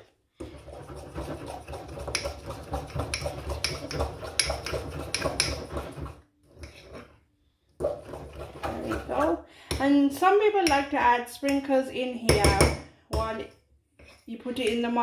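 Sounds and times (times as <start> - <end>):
spoon stirring batter in mug: 0.4 - 7.2, 7.8 - 11.6, 12.2 - 13.3.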